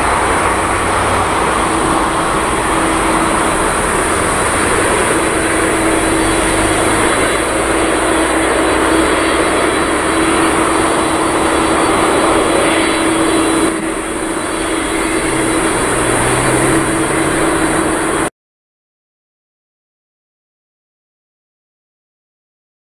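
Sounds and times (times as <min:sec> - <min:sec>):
jet engines roaring at take-off: 0:00.0 - 0:18.3.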